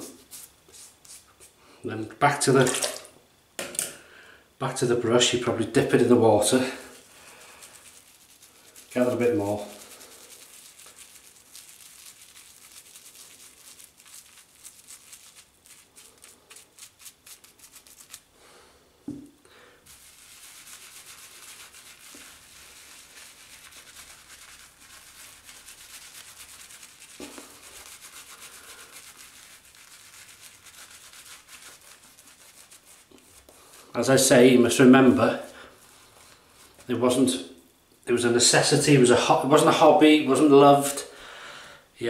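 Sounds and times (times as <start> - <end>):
brush rubbing lather on face: 0.0 - 1.6, 5.9 - 18.3, 19.8 - 37.3
shaving brush scrubbing soap: 5.4 - 18.3, 19.8 - 37.2.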